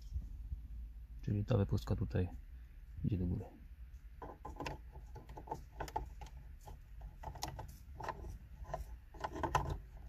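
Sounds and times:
plastic button clicks and rattles: 4.2s - 10.0s.

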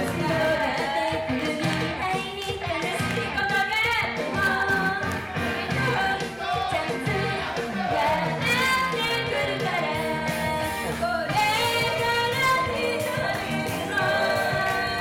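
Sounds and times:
upbeat pop backing track: 0.0s - 15.0s
women singing into microphones: 0.0s - 15.0s.

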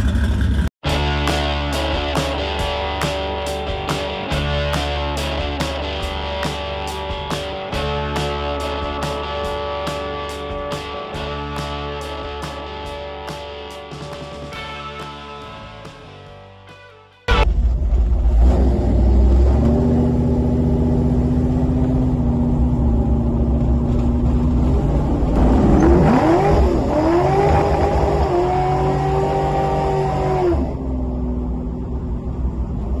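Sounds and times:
car engine revving: 17.3s - 33.0s.

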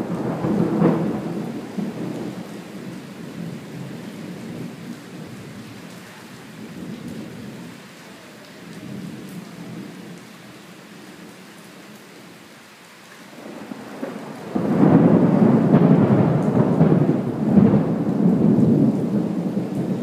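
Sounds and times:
thunder rumbling: 0.0s - 5.7s, 13.4s - 20.0s
steady rain: 0.0s - 20.0s.

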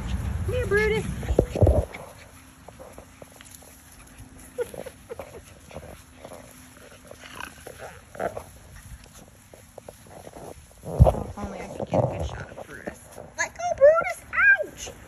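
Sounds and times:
puppies making soft vocal sounds: 0.0s - 13.5s.

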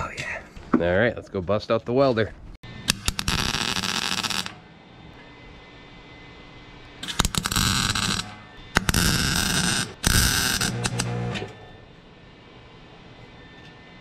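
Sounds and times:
welder arc hissing and humming: 2.6s - 11.8s.

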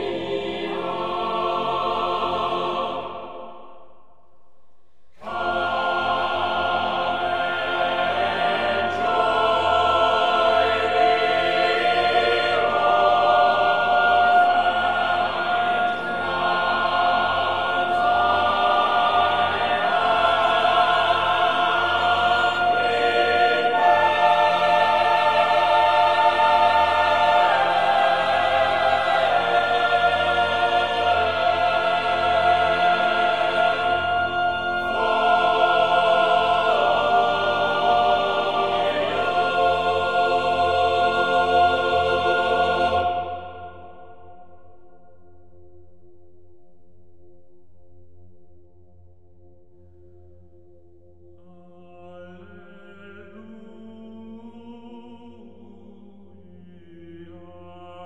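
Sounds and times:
choir singing sustained chords: 0.0s - 58.0s.

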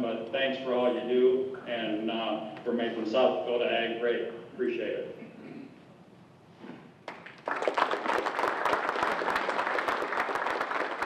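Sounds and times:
audience applauding: 7.1s - 11.0s.

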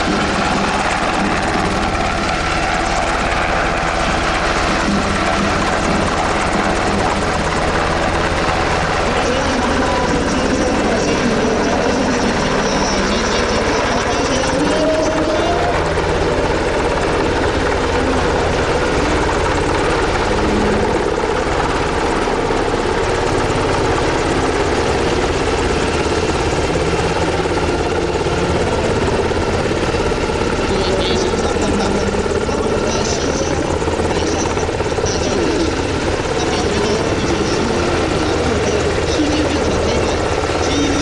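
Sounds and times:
helicopter rotor beating: 0.0s - 41.0s.

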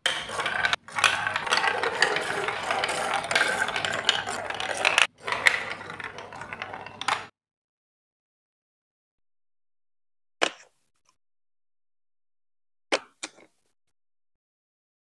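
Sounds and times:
plastic ball rattling along track: 0.0s - 7.3s.

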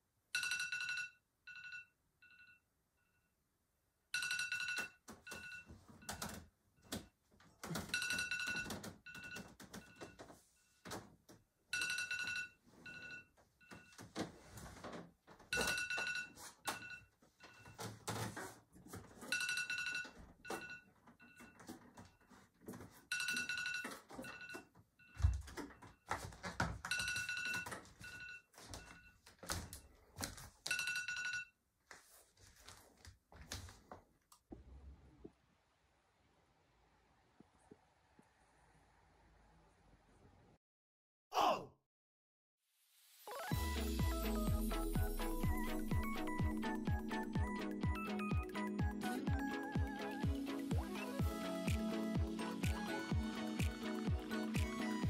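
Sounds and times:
phone ringtone: 0.4s - 3.3s, 4.2s - 6.3s, 7.8s - 10.8s, 11.7s - 14.0s, 15.5s - 17.8s, 19.2s - 21.8s, 23.1s - 25.9s, 26.8s - 29.2s, 30.7s - 31.6s, 43.3s - 55.0s.

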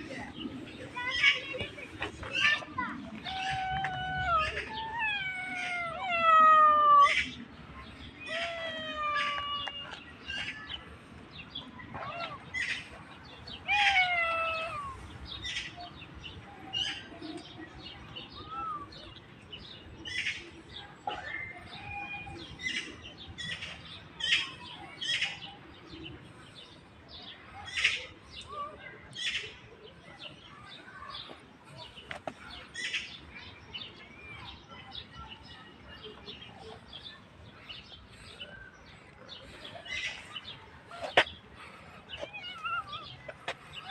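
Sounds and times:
cat meowing: 13.7s - 15.0s, 42.2s - 43.0s.

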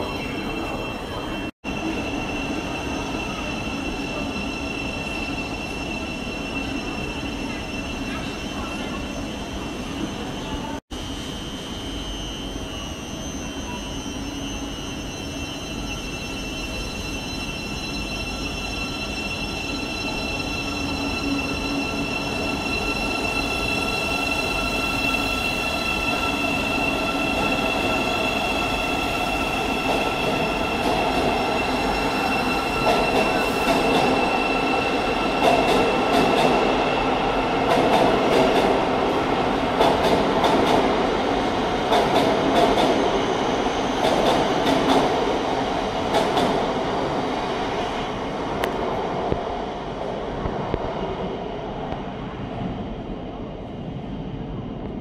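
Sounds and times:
train high whine: 0.0s - 54.0s.

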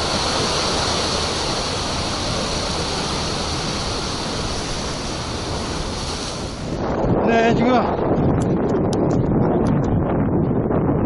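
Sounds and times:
surf washing against rocks: 0.0s - 8.0s.

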